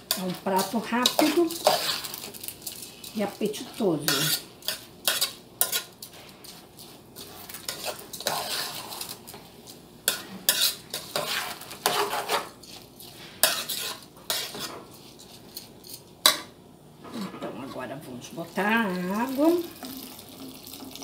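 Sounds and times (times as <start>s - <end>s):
metal spoon stirring in pot: 0.0s - 16.5s.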